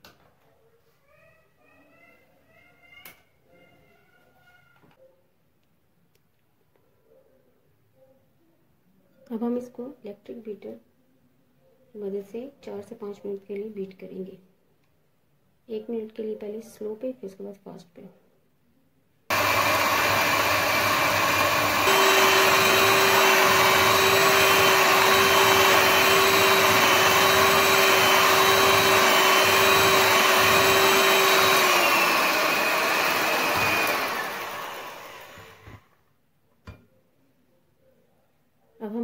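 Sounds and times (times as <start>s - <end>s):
electric hand mixer whirring: 19.3s - 35.8s.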